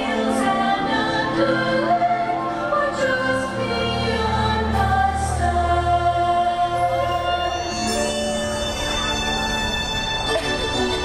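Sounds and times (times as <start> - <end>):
choir singing over music: 0.0 - 8.4.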